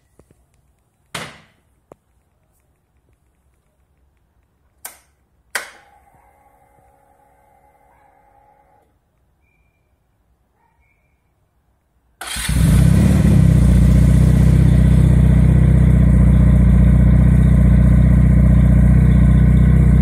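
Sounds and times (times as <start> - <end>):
sharp clicks and knocks: 0.1 - 5.9
fuel pump electric hum: 12.5 - 20.0.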